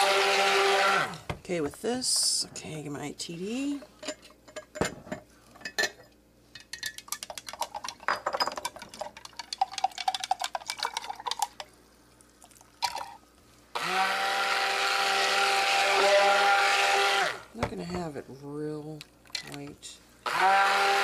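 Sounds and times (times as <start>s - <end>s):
stick blender motor whir: 0.0s - 1.2s, 13.8s - 17.5s, 20.2s - 21.0s
stirrer clinking in ceramic pitcher: 6.6s - 11.7s.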